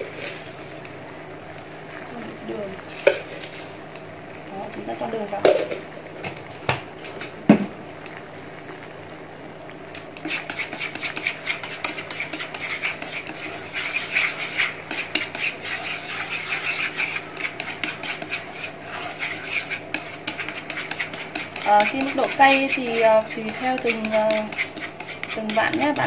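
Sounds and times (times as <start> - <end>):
chopsticks scraping a pan: 2.8 - 3.8, 10.2 - 26.0.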